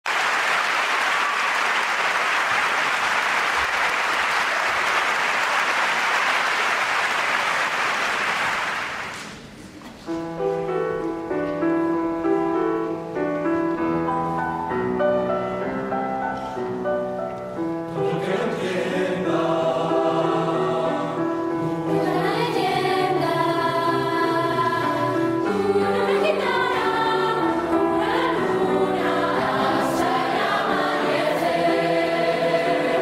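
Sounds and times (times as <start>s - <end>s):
audience applauding: 0.0s - 9.4s
grand piano playing: 10.0s - 33.0s.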